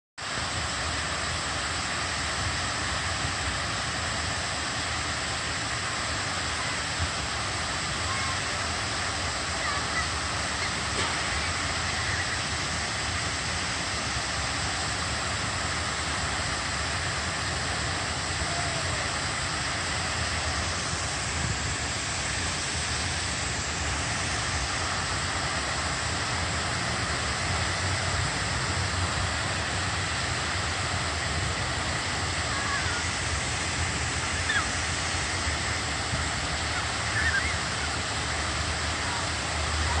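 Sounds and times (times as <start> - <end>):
fountain water spraying: 0.2 - 40.0.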